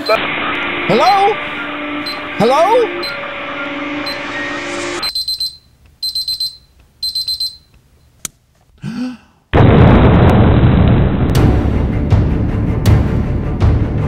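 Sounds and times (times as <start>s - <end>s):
digital timer alarm beeping: 0.9s - 7.7s
loud explosion: 9.6s - 12.9s.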